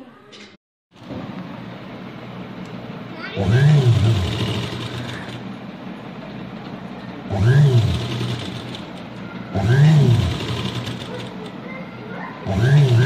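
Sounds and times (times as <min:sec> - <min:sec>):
electric sewing machine stitching: 0:03.4 - 0:05.5, 0:07.3 - 0:11.6, 0:12.4 - 0:13.0.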